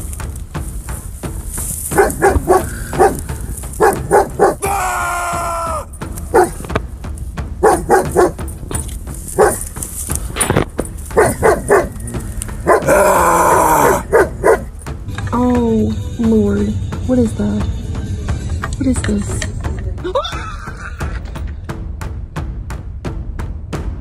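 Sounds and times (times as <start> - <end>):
dog barking: 1.9 - 3.2, 3.8 - 4.6, 6.3 - 6.6, 7.6 - 8.4, 9.4 - 9.6, 11.1 - 13.0, 13.9 - 14.7
long wavering cry: 12.8 - 14.1.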